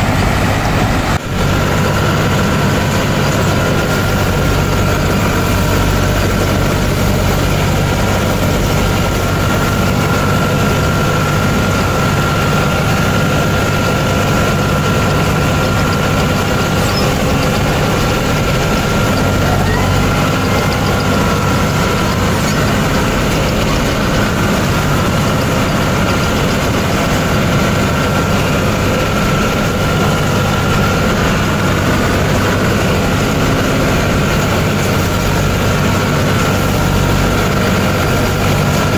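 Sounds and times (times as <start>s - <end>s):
diesel engine drone: 0.0s - 38.9s
high whine: 0.0s - 38.9s.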